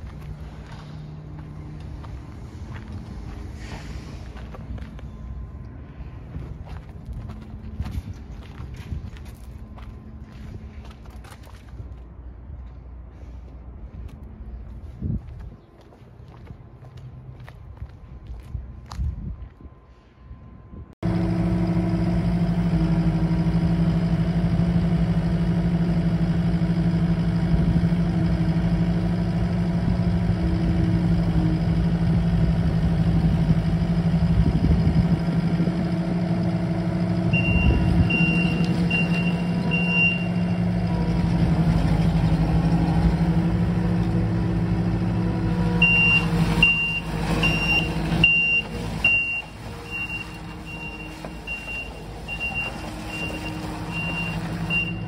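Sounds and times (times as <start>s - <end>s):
diesel engine running: 0.0s - 15.5s, 19.8s - 55.0s
backup alarm beeping: 37.2s - 40.8s, 45.7s - 55.0s.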